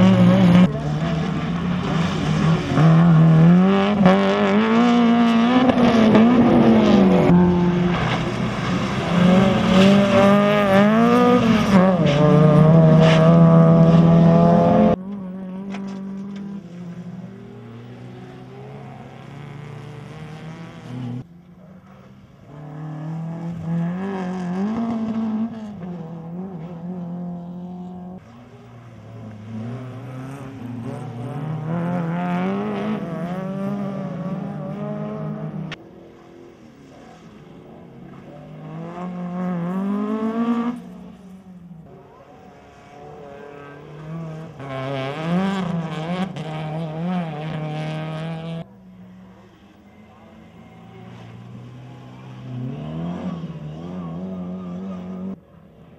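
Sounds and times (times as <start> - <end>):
rally car engines revving: 0.0 - 55.9.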